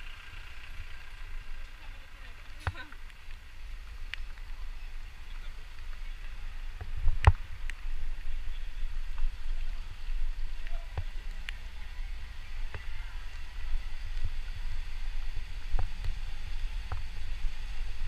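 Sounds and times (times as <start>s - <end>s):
vehicle rumbling on wet street: 0.0s - 18.0s
faint clicks: 4.0s - 4.6s.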